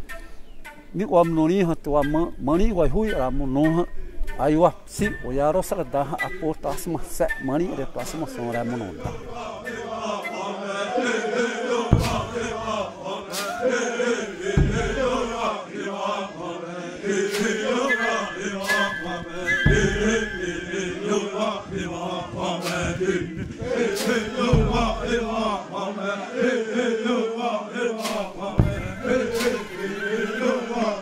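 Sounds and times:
group chanting in unison: 8.0 - 31.0
sharp knocks: 11.9 - 12.8, 14.4 - 15.4, 17.3 - 20.8, 22.6 - 25.6, 28.0 - 30.0.

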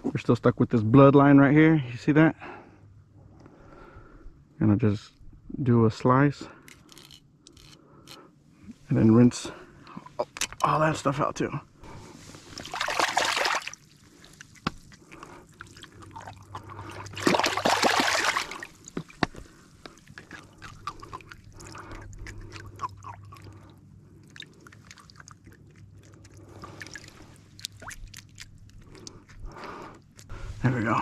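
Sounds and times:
water sloshing and trickling: 11.8 - 30.4
loud water splash: 12.6 - 13.8, 17.1 - 18.7.

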